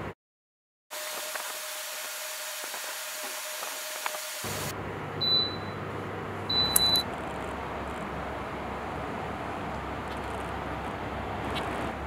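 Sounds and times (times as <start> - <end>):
air cooler running: 1.0 - 12.0
short high electronic beeps: 5.2 - 5.8, 6.5 - 7.0.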